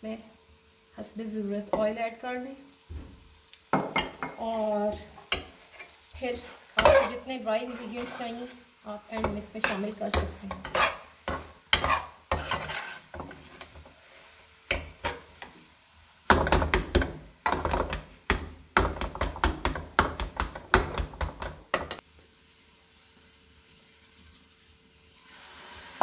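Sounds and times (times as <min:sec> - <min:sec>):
spatula scraping a steel wok: 0:04.9 - 0:15.6.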